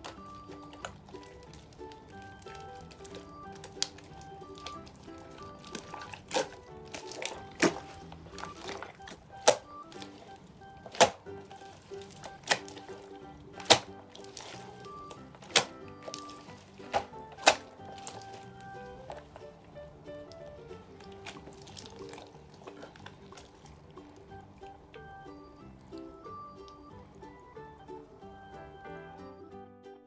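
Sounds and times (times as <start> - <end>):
slime wet pops: 0.0 - 10.2, 10.8 - 18.4
soft background music: 0.0 - 30.0.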